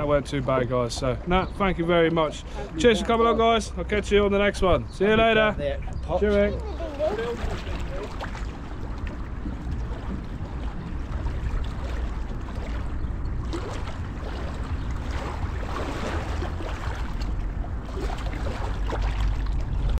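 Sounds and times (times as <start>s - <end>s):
wind buffeting the microphone: 3.8s - 20.0s
water lapping on stone: 6.5s - 20.0s.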